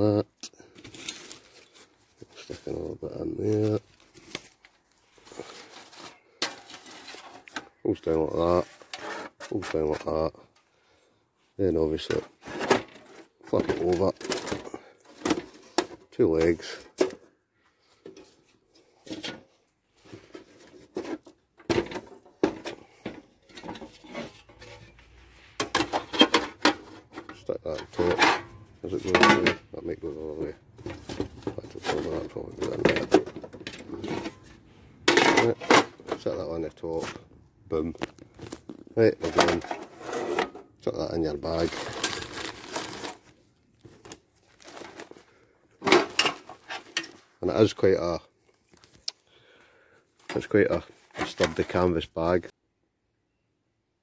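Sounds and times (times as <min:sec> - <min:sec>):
light metal clanks and knocks: 0:21.0 - 0:25.0.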